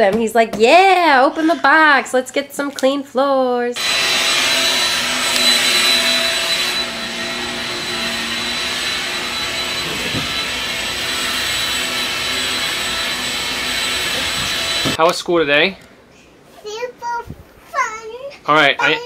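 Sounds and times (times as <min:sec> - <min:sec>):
vacuum cleaner running on carpet: 0:03.8 - 0:15.0.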